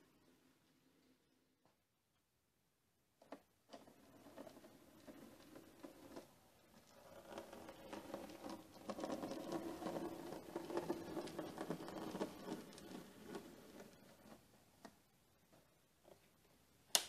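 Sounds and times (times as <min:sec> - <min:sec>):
wheels clicking over track: 0:03.7 - 0:14.4.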